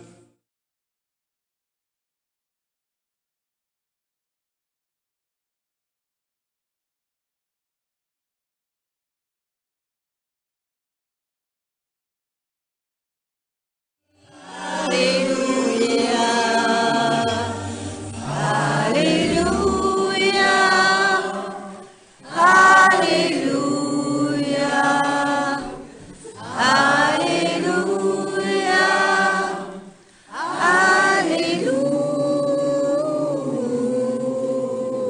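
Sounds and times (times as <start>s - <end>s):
group singing in unison: 14.2s - 35.0s.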